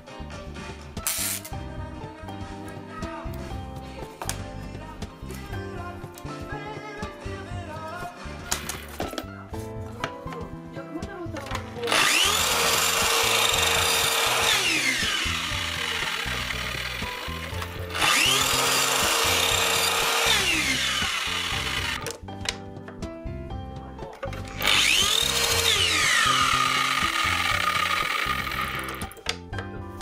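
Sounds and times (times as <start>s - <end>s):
miter saw motor whine: 11.9s - 22.0s, 24.5s - 29.0s
saw cutting wood: 11.9s - 22.0s, 24.4s - 29.1s.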